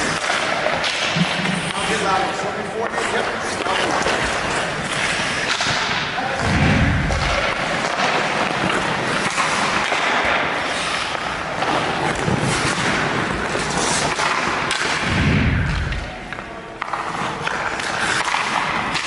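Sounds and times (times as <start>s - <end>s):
skate blades scraping ice: 0.0s - 6.0s, 7.1s - 15.1s, 15.9s - 19.0s
hockey stick and puck noise: 0.0s - 19.0s
heavy thuds: 5.6s - 7.6s, 15.0s - 16.1s.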